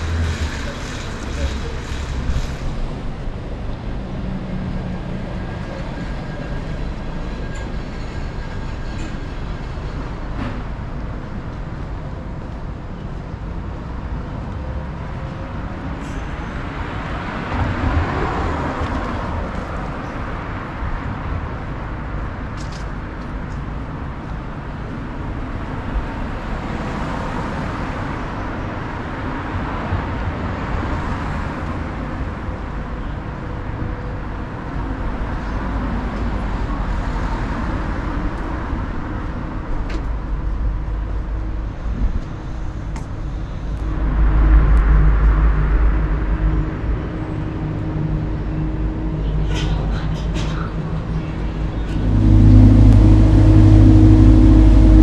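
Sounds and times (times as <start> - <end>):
cars passing close by: 0.0 - 7.4, 14.1 - 22.5, 51.0 - 55.0
heavy low rumble: 0.0 - 12.6, 51.0 - 55.0
road noise: 0.0 - 55.0.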